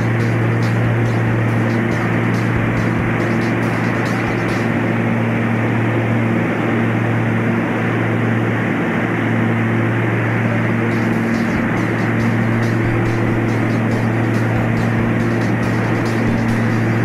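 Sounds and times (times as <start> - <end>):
light aircraft engine droning: 0.0 - 17.0.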